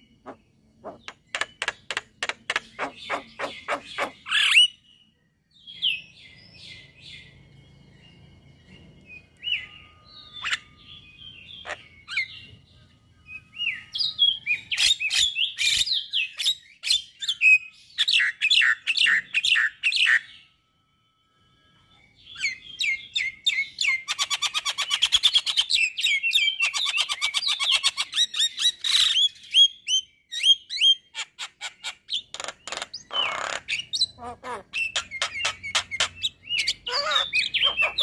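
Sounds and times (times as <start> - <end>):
myna singing and whistling: 33.1 - 38.0.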